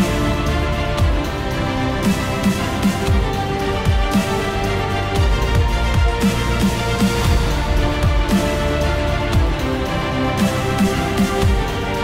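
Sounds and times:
electronic kick drums: 0:07.0 - 0:09.8.

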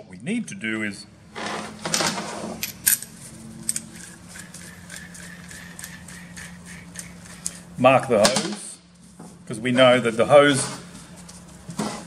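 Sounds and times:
low steady hum: 0:00.0 - 0:12.0
metal parts rustling and clicking: 0:01.9 - 0:05.9.

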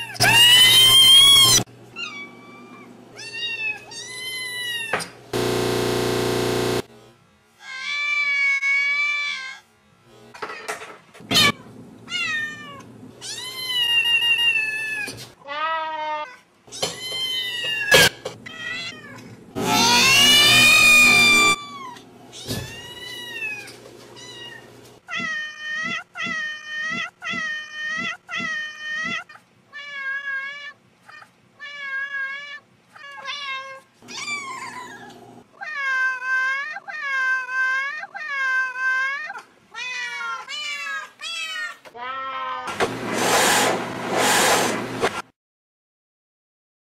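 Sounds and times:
cat meowing: 0:11.3 - 0:42.7
kittens meowing: 0:16.8 - 0:23.6.

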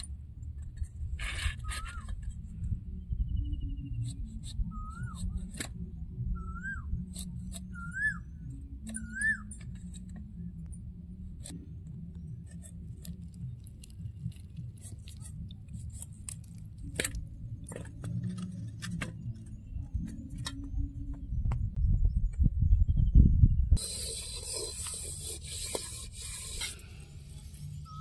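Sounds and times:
bird whistling: 0:04.7 - 0:05.5, 0:06.3 - 0:09.6.

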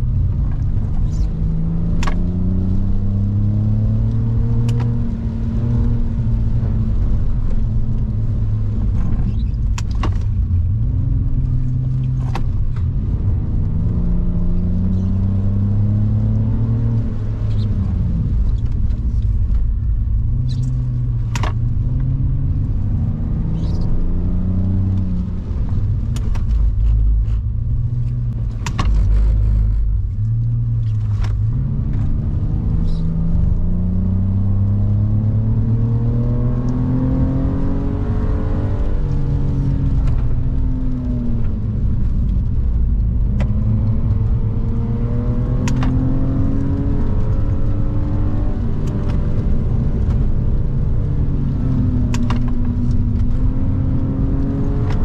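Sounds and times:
car engine revving: 0:00.0 - 0:55.0
tyre and road rumble: 0:00.0 - 0:55.0.

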